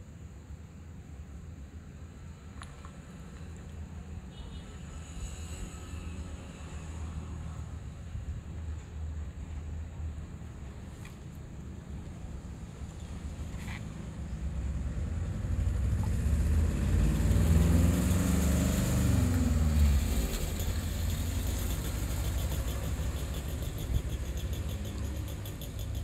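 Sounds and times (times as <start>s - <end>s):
truck driving past: 14.2s - 26.0s.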